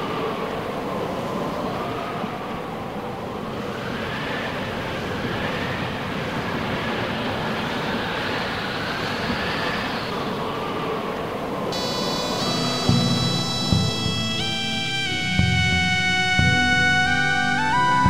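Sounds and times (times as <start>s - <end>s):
faint wavering tone: 11.8s - 18.0s.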